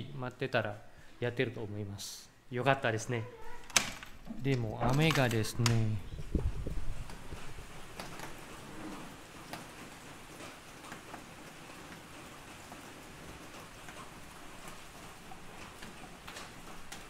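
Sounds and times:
rain falling: 0:04.4 - 0:17.0.

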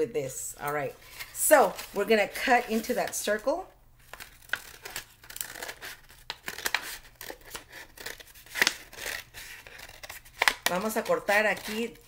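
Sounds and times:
scissors cutting paper plate: 0:04.2 - 0:12.0.

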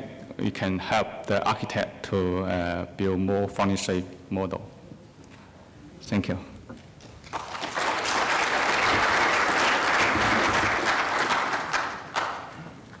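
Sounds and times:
audience applauding: 0:07.2 - 0:12.7.

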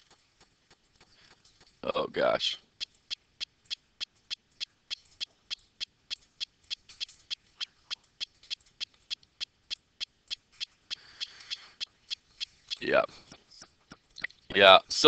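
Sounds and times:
rapid regular sharp clicks: 0:00.0 - 0:14.5.

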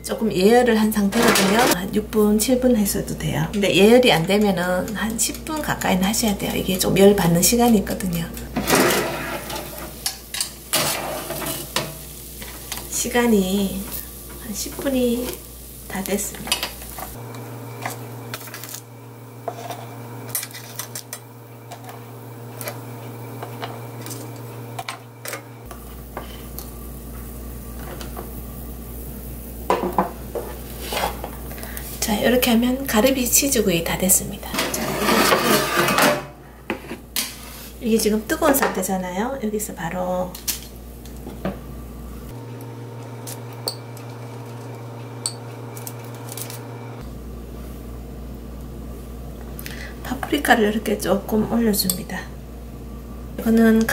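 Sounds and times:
spoon tapping and scraping: 0:43.6 - 0:43.8.

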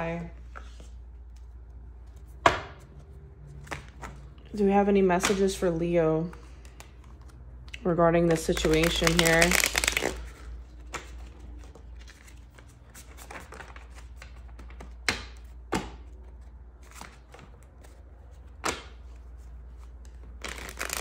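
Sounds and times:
cards rustling: 0:06.3 - 0:21.0.

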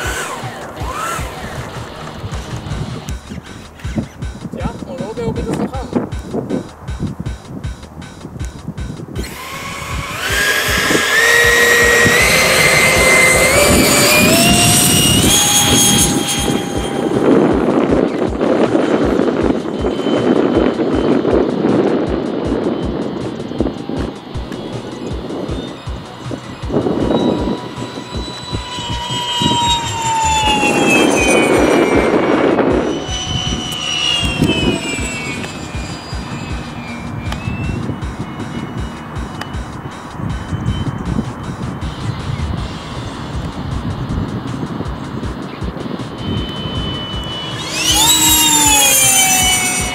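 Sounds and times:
electric ducted fan whine: 0:00.0 - 0:49.9
loud air rushing: 0:00.0 - 0:49.9.

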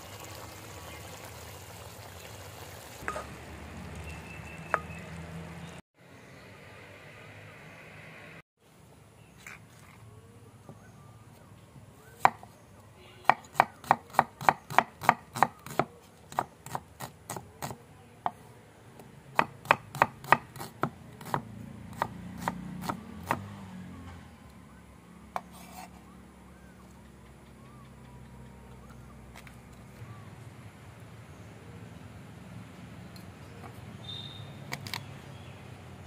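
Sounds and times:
knife chopping on wooden board: 0:13.2 - 0:17.8, 0:19.4 - 0:23.5.

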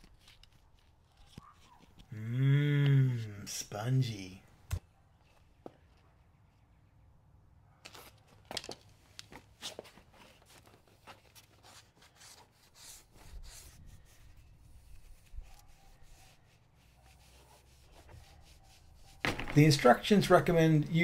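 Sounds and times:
sponge rubbing on plastic: 0:11.6 - 0:19.2.

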